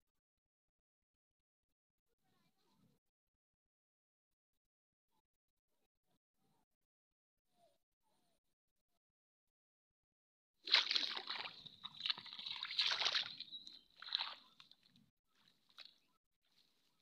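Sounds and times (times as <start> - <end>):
muddy water splashing: 10.6 - 17.0.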